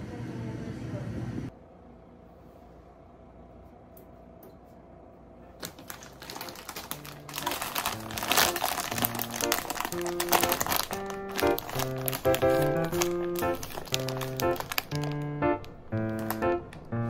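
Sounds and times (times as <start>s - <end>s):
background music: 5.4s - 17.0s
plastic bag crinkling: 5.6s - 17.0s.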